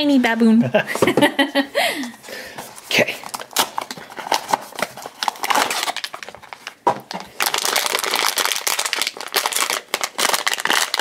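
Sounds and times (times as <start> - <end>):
foil bag crinkling: 2.9 - 11.0.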